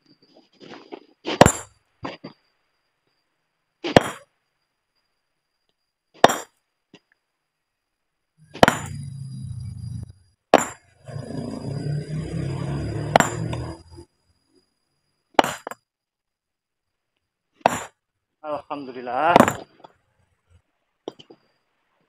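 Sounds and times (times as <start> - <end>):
sledgehammer striking stone: 1.3 - 1.8, 3.9 - 4.3, 6.2 - 6.6, 8.5 - 9.1, 10.5 - 11.5, 12.9 - 13.9, 15.3 - 15.9, 17.6 - 18.0, 19.3 - 19.8
low steady drone: 8.4 - 14.2.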